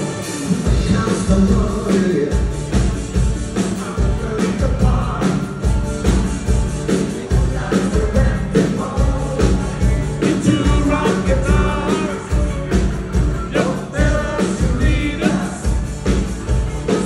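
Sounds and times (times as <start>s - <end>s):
drum and bass beat: 0.0s - 17.0s
person singing: 3.6s - 5.7s, 6.8s - 16.0s.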